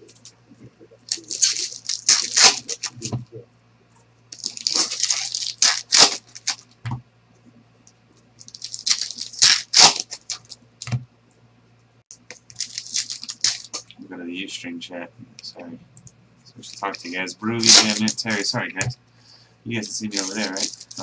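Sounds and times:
foil wrappers tearing and crinkling: 0:01.1 - 0:03.1, 0:04.4 - 0:06.6, 0:08.4 - 0:10.6, 0:12.3 - 0:13.8, 0:16.6 - 0:18.5, 0:19.8 - 0:21.0.

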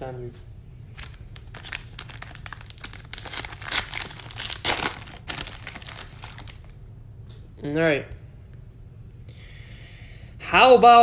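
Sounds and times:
foil wrapper crinkling and tearing: 0:00.9 - 0:06.8.

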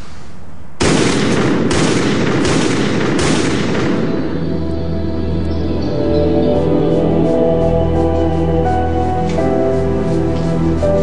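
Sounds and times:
pistol shots: 0:00.8 - 0:04.5
music: 0:03.5 - 0:11.0.

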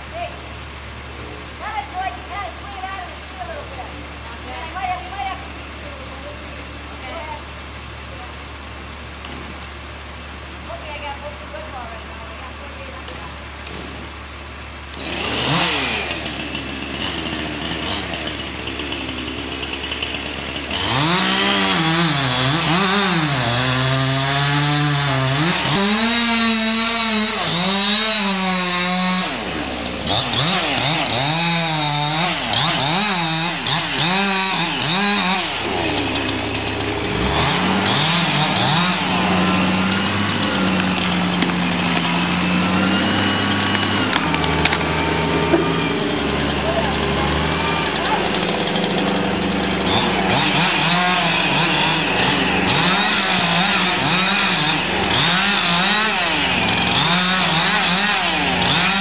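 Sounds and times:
chainsaw cutting tree trunk: 0:09.1 - 0:10.4, 0:12.9 - 0:59.0
steady drone: 0:27.1 - 0:57.2.

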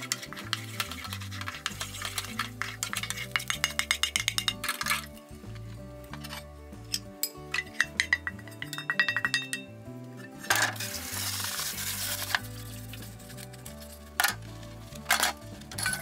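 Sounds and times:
metal utensil clinking on pan: 0:00.0 - 0:05.0, 0:06.9 - 0:09.7
food sizzling in hot oil: 0:10.7 - 0:12.8.

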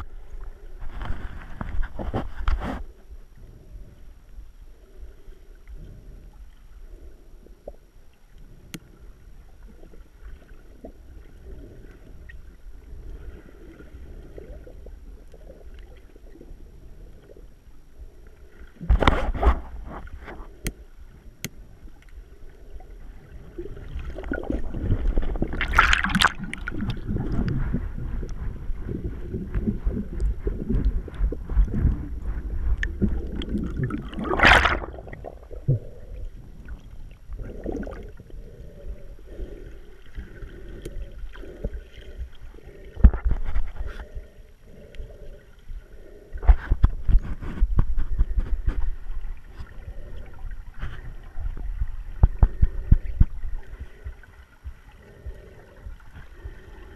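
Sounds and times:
muffled underwater water sloshing: 0:00.0 - 0:56.9.

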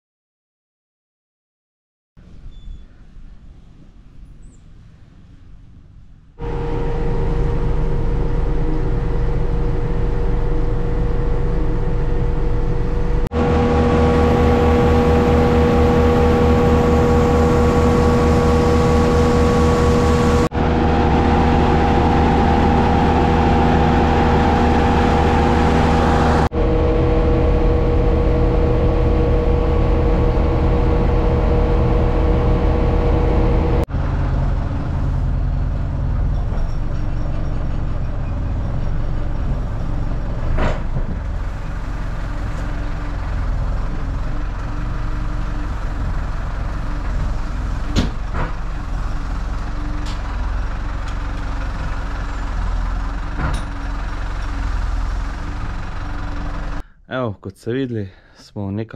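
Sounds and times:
grain mill grinding drone: 0:06.4 - 0:56.8.

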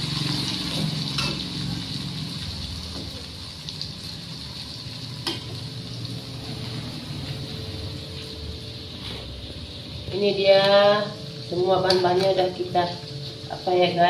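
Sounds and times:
food sizzling in oil: 0:00.0 - 0:14.0
spatula scraping wok: 0:08.9 - 0:09.5.

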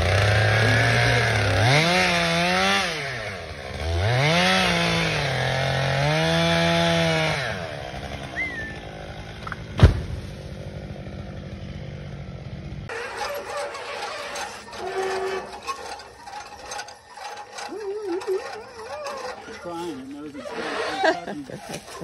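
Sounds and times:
chainsaw cutting and revving: 0:00.0 - 0:22.0
sharp wood crack: 0:09.3 - 0:10.5.

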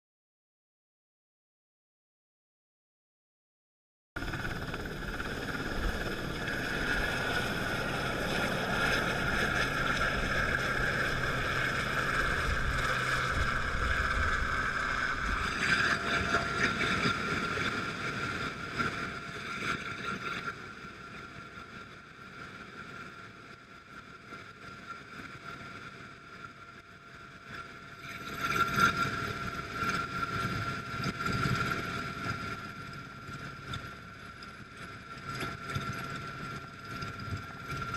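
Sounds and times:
helicopter rotors beating: 0:04.2 - 0:21.0
helicopter turbine whine: 0:04.2 - 0:25.0, 0:29.0 - 0:37.9.

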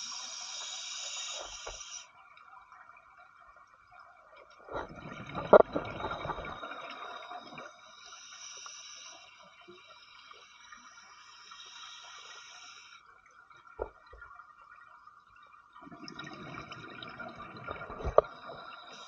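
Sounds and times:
regulator hiss of inhaled air: 0:00.0 - 0:02.1, 0:07.9 - 0:09.5, 0:11.1 - 0:13.0
exhaled bubbles gurgling: 0:04.6 - 0:08.0, 0:15.7 - 0:19.0.

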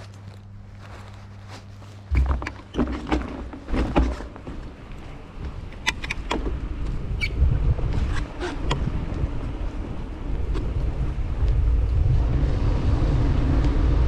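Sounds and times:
steady low hum: 0:00.0 - 0:14.0
wind rumble on microphone: 0:00.0 - 0:14.0
bicycle knocks and rattles: 0:01.8 - 0:11.5.

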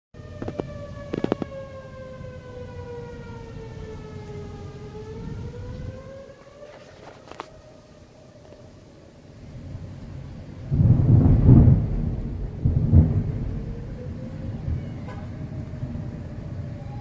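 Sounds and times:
warning siren wailing: 0:00.1 - 0:17.0
low rumbling noise: 0:09.1 - 0:17.0.

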